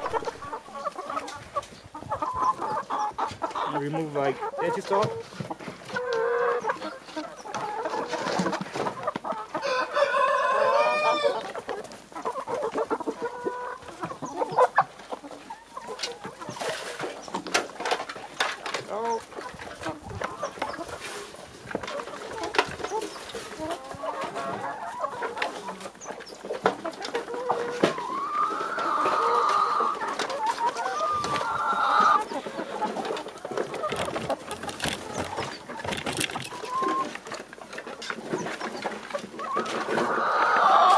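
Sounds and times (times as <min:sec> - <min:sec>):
chickens clucking: 0:00.0 - 0:40.9
chicken drawn-out call: 0:05.9 - 0:17.4, 0:21.9 - 0:35.8, 0:38.3 - 0:40.9
rooster crowing: 0:09.6 - 0:11.4
clicks and rustles: 0:32.2 - 0:40.1.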